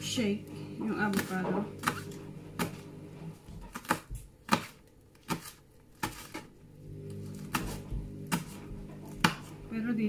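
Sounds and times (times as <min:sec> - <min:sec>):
knife chopping on cutting board: 0:00.8 - 0:02.8, 0:03.4 - 0:06.5, 0:07.2 - 0:09.6.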